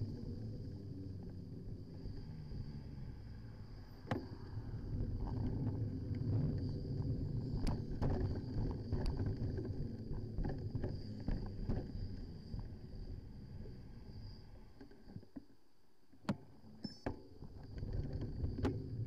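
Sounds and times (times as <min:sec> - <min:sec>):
bike rattling over bumps: 0:04.9 - 0:12.5.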